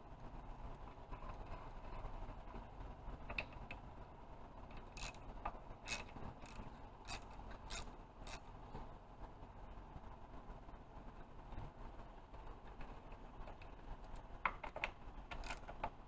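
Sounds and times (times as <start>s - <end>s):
ratchet wrench clicking: 4.8s - 8.5s, 15.3s - 15.7s.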